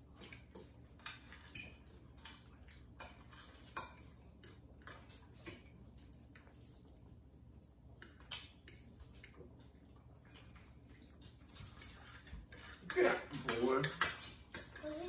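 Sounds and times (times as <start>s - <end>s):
low room hum: 0.0s - 15.0s
forks clicking against plates: 8.0s - 15.0s.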